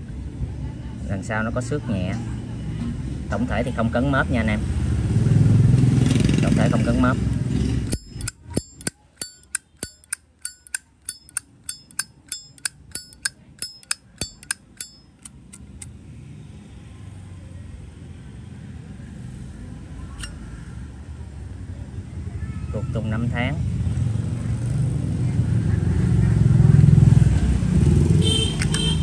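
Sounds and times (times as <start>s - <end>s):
lighter lid clicking open and shut: 7.9s - 15.3s.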